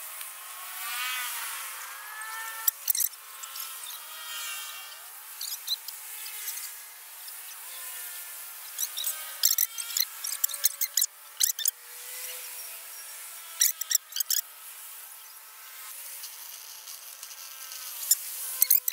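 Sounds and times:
metallic bicycle clicks: 0:08.8 - 0:11.7, 0:13.6 - 0:14.4.

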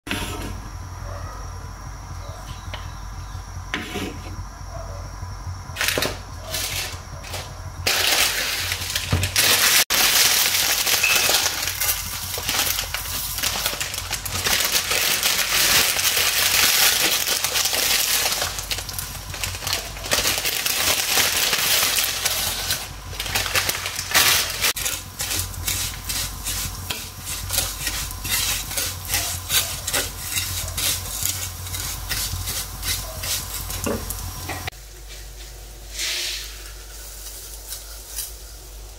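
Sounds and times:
spatula scraping crackling noodles: 0:07.8 - 0:34.4
butter sizzling in frying pan: 0:07.8 - 0:34.7.

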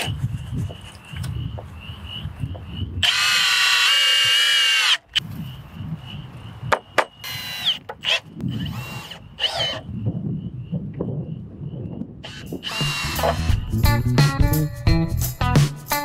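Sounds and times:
cordless drill motor whining: 0:03.0 - 0:05.1, 0:07.2 - 0:09.9, 0:12.2 - 0:13.5.

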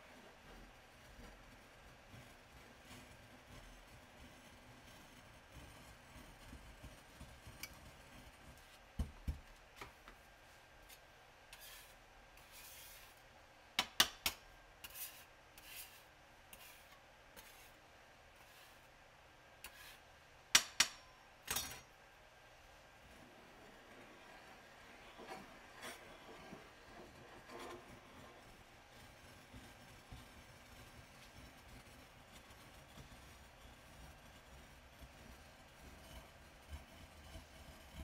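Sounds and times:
muller rubbing powder on glass: 0:11.5 - 0:13.2, 0:14.8 - 0:17.8, 0:18.4 - 0:18.9, 0:23.1 - 0:38.0.

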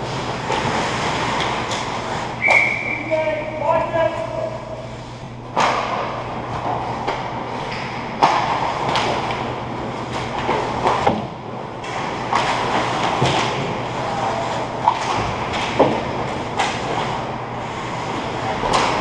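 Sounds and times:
skate blades scraping ice: 0:00.4 - 0:02.3
hockey sticks and puck clacking: 0:05.6 - 0:09.5, 0:11.8 - 0:17.2, 0:18.5 - 0:19.0.

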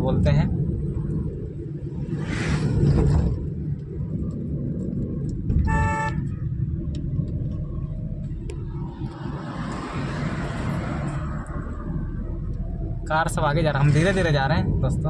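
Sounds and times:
car engine and road rumble: 0:00.0 - 0:15.0
vehicle horn honk: 0:05.6 - 0:06.3.

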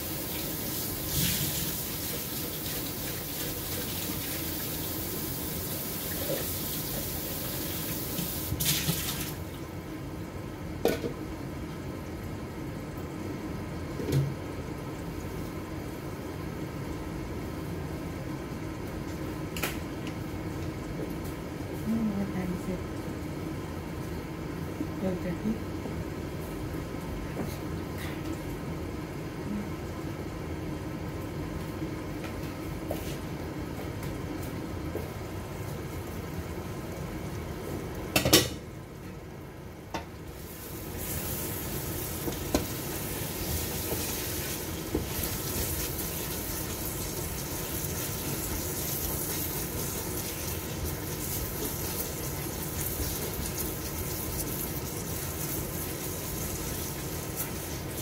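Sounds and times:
curry bubbling in a pot: 0:00.0 - 0:08.4, 0:34.8 - 0:58.0
curry sizzling: 0:00.0 - 0:09.8, 0:35.0 - 0:58.0.

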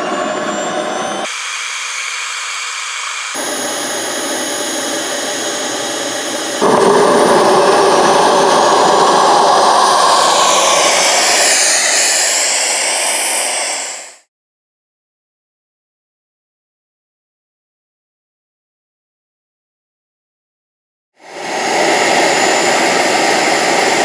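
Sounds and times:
model jet engine whine: 0:00.0 - 0:14.3, 0:21.2 - 0:24.0.

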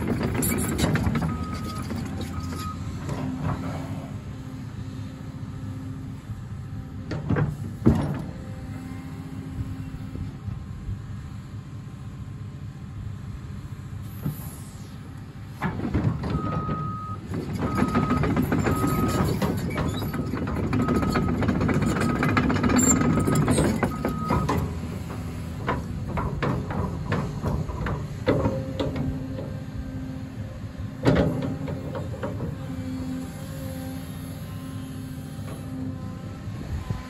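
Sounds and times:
machine clanks and knocks: 0:00.0 - 0:03.6, 0:07.0 - 0:08.4, 0:15.6 - 0:29.6, 0:31.0 - 0:32.7
excavator diesel engine: 0:00.0 - 0:37.0.

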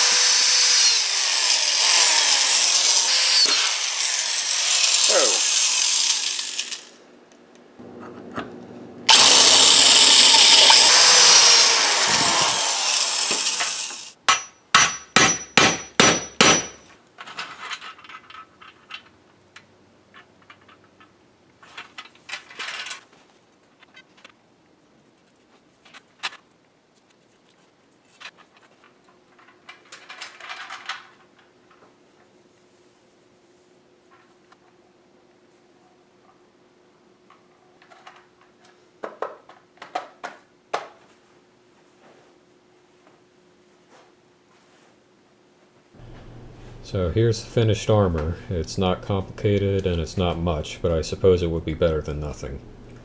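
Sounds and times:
electric rotary tool running: 0:00.0 - 0:07.0, 0:09.1 - 0:14.2
hammer strikes on metal: 0:14.2 - 0:16.8.

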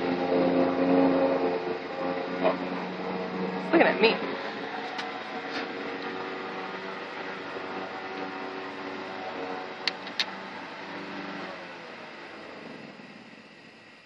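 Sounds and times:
steady motor hum: 0:00.0 - 0:14.0
sharp clicks: 0:09.8 - 0:10.4.

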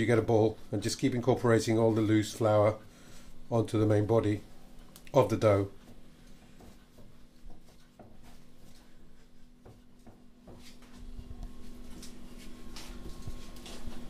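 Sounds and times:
faint steady hum: 0:00.0 - 0:14.0
hands kneading sticky dough: 0:04.6 - 0:14.0.

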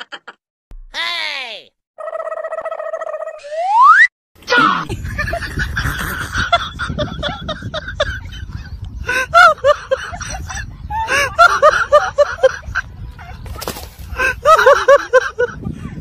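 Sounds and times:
high giggling: 0:04.6 - 0:13.4, 0:14.1 - 0:15.9.

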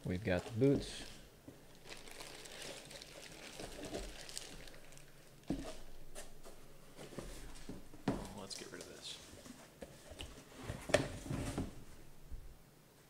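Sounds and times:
plastic bags rustling: 0:00.0 - 0:09.3.

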